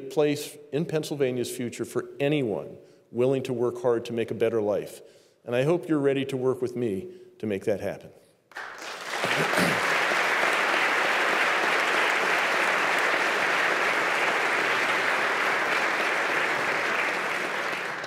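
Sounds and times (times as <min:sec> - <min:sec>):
audience applauding: 0:08.5 - 0:18.0.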